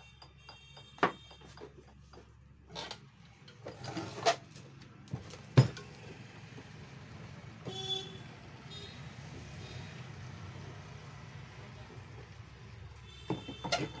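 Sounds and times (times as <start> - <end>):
metal saw clanking and scraping: 1.2 - 4.5.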